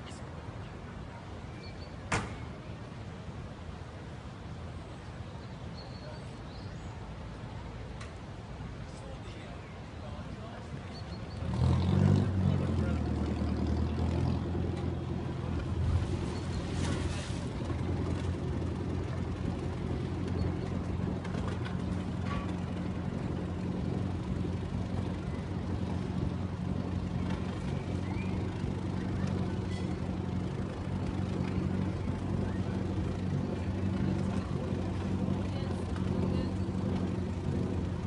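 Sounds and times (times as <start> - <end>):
motor boat engine idling: 12.6 - 38.0.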